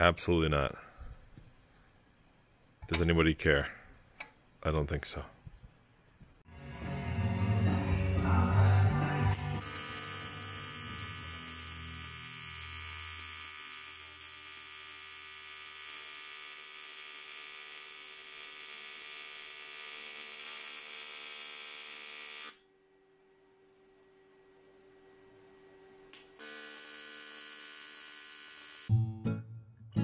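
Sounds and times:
welding arc buzzing: 9.3s - 22.7s, 26.1s - 28.9s.

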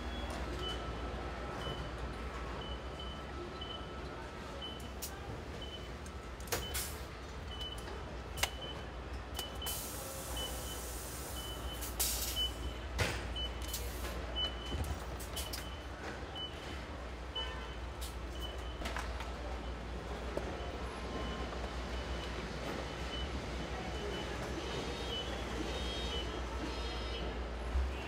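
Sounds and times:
electronic warning beep: 9.4s - 12.8s.

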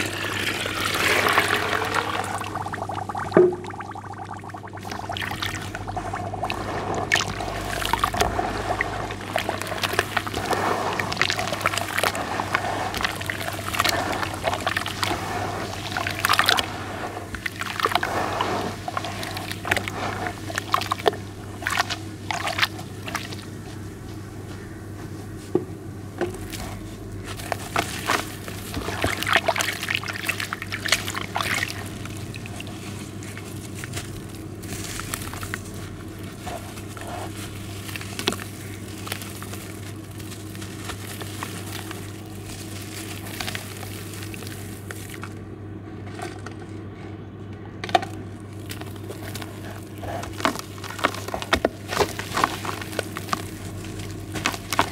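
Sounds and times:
water running off into tub: 0.0s - 23.3s, 27.6s - 35.6s
water sloshing: 0.0s - 23.6s, 26.3s - 45.4s
hands squelching wet slurry: 0.0s - 25.5s, 26.3s - 45.4s, 48.4s - 54.9s.

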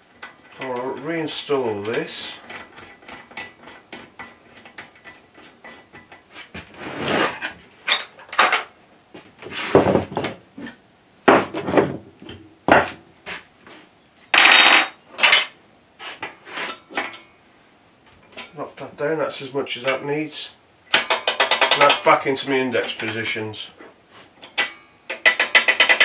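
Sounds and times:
metal parts clattering and scraping: 6.8s - 8.7s, 14.4s - 15.6s.

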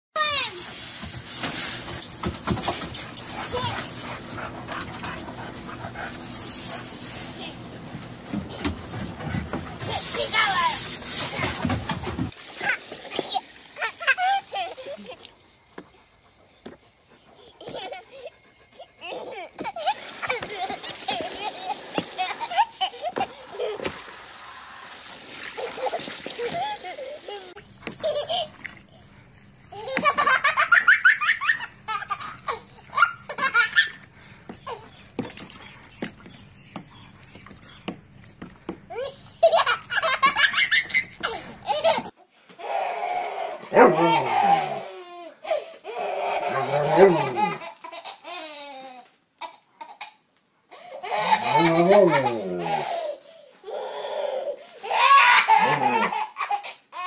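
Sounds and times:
toddler belly-laughing: 39.0s - 50.2s, 50.8s - 57.0s.

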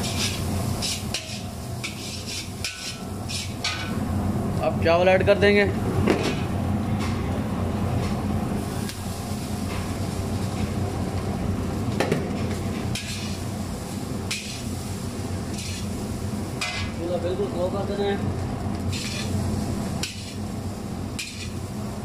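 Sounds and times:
metal ladle scraping wok: 0.0s - 3.9s, 12.9s - 13.4s, 14.3s - 14.7s, 15.5s - 15.9s, 18.9s - 19.4s, 21.2s - 21.6s
steady low hum: 0.0s - 22.0s.

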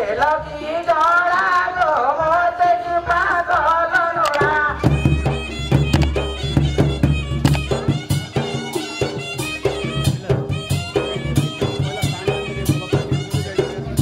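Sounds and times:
drum beats: 4.2s - 14.0s.

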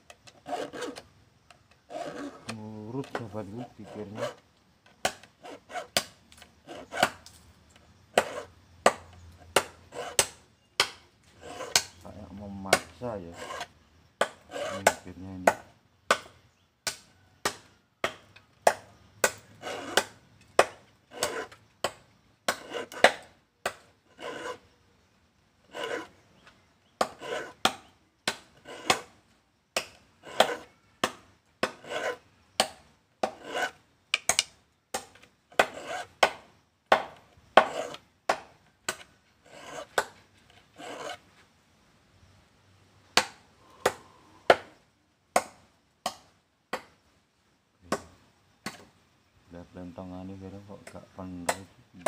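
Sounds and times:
file rasping on saw teeth: 0.2s - 1.0s, 1.9s - 4.4s, 5.0s - 7.2s, 8.2s - 10.4s, 11.3s - 15.6s, 19.2s - 21.6s, 22.5s - 23.2s, 24.1s - 24.7s, 25.6s - 26.2s, 27.0s - 29.2s, 29.8s - 33.8s, 35.5s - 36.3s, 37.6s - 38.0s, 38.9s - 40.1s, 40.7s - 41.2s.

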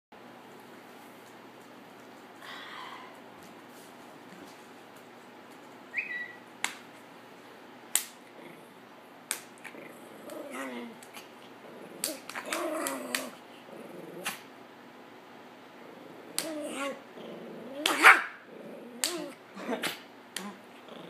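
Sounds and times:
sharp smacks: 6.6s - 6.9s, 7.9s - 8.2s, 9.3s - 9.7s
small dog growling: 8.2s - 8.9s, 9.6s - 14.5s, 15.7s - 21.0s.

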